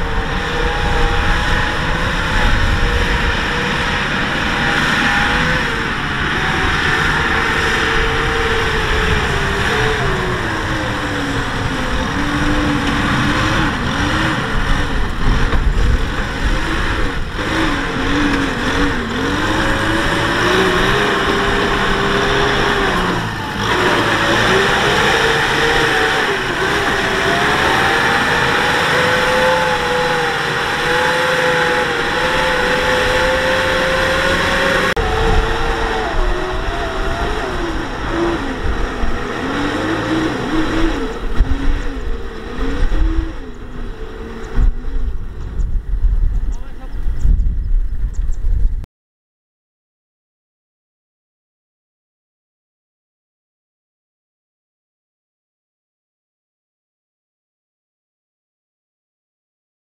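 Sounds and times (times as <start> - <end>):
tractor diesel engine under load: 0.0 - 47.4.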